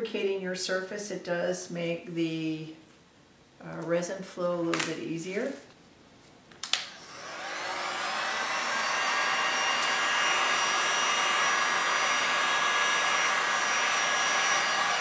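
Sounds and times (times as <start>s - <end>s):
heat gun fan blowing: 6.8s - 15.0s.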